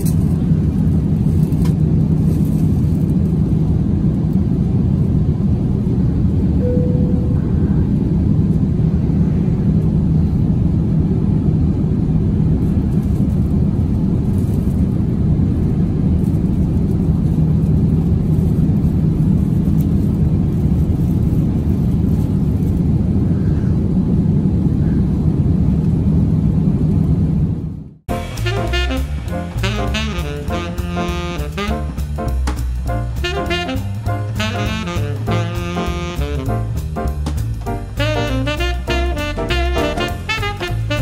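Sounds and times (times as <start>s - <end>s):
airplane cabin engine rumble: 0.0s - 41.0s
jazz music with saxophone and drums: 28.1s - 41.0s.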